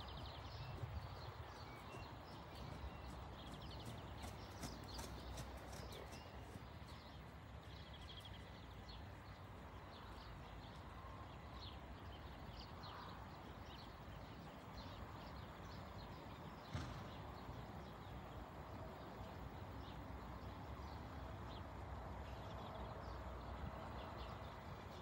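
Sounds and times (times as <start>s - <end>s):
hoofbeats on sand: 0.0s - 8.4s
birds chirping: 0.0s - 17.9s.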